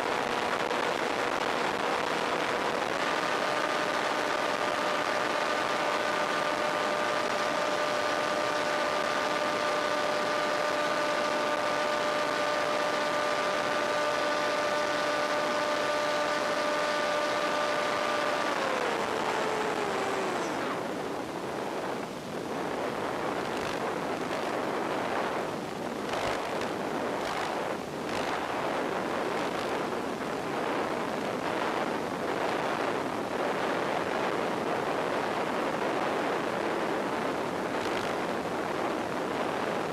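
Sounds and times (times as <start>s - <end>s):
electric motor whine: 0.0s - 21.2s, 26.1s - 29.9s.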